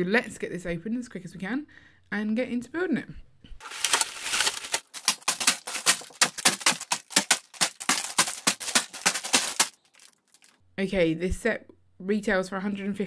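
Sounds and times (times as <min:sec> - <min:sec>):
plastic bags of bricks crinkling: 0:03.6 - 0:10.6.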